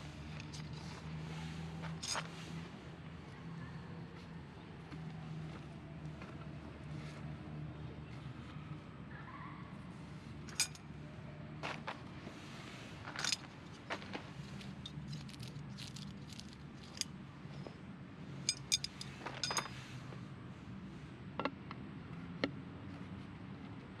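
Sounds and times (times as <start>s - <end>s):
mesh bag rustling: 14.5s - 17.0s
tent poles clicking together: 14.6s - 17.1s.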